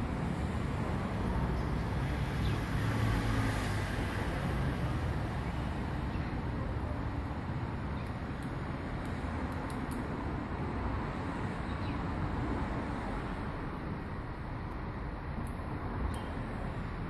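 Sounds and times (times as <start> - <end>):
road traffic noise: 0.0 - 17.0.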